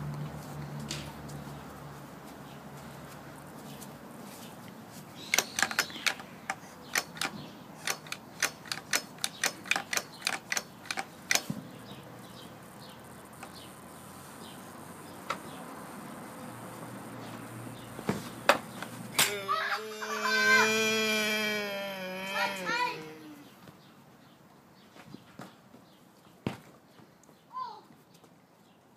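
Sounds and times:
sharp plastic clicks and clacks: 5.2 - 11.6.

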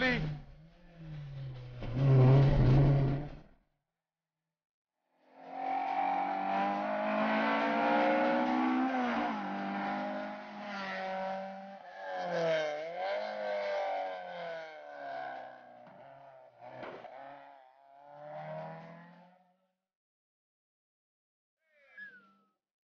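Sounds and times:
rally car engine at full throttle: 0.0 - 3.5, 5.2 - 19.6.

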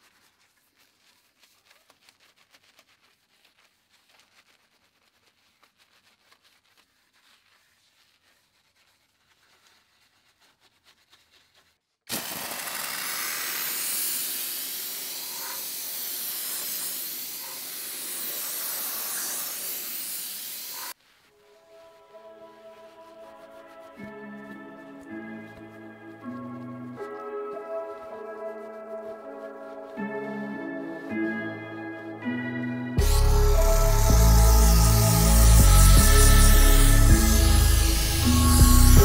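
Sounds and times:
brush scratching on panels: 0.0 - 12.0, 12.8 - 30.4, 33.0 - 39.0
steam cleaner jet hissing: 12.1 - 21.0, 33.0 - 39.0.

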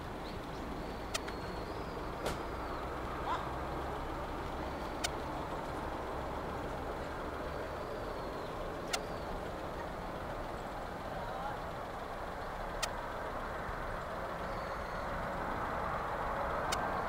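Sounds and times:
distant jet engines rushing: 0.0 - 17.0
sharp clicks: 1.0 - 1.6, 4.9 - 5.8, 8.8 - 9.3, 12.7 - 13.2, 16.6 - 16.9.

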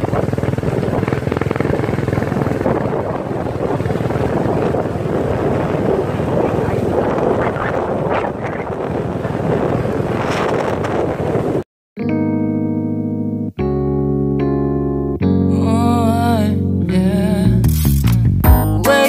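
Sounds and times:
small motorcycle running: 0.0 - 11.6
wind rushing over microphone: 0.0 - 11.6.

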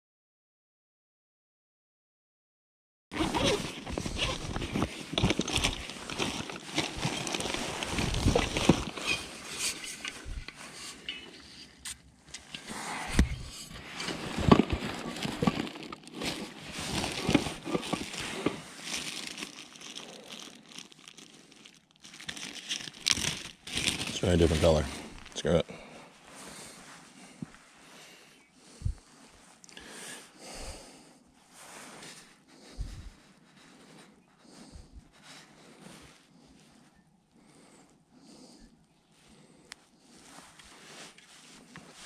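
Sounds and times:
fabric backpack rustling: 3.1 - 11.5, 12.4 - 29.6, 40.0 - 42.0
plastic bag crackling: 3.2 - 10.1, 13.8 - 25.6.

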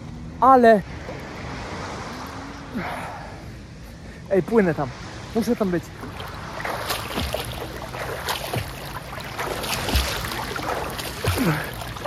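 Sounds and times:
sea water splashing: 5.4 - 12.0
low water thumps: 6.0 - 12.0.

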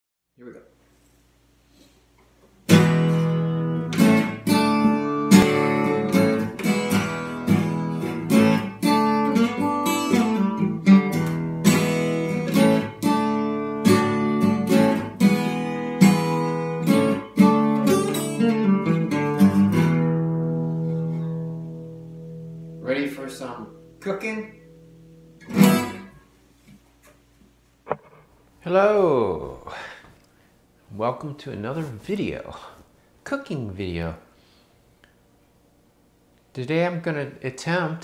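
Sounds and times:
acoustic guitar strumming: 2.7 - 26.3.

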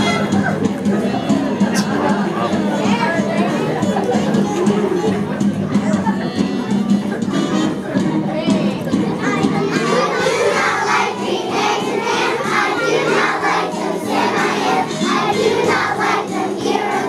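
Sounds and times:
children's choir singing: 8.9 - 17.0.

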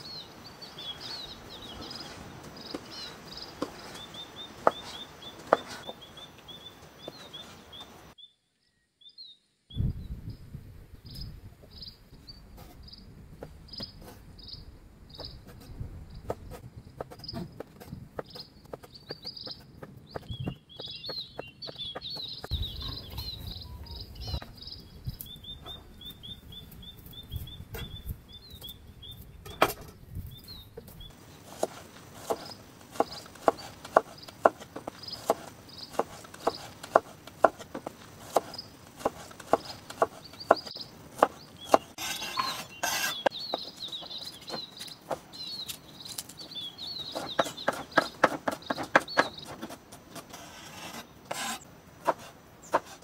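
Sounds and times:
knife chopping on wooden board: 4.6 - 6.0, 31.5 - 43.2, 47.1 - 49.8, 51.3 - 53.0
high-pitched chirping: 21.7 - 26.2.

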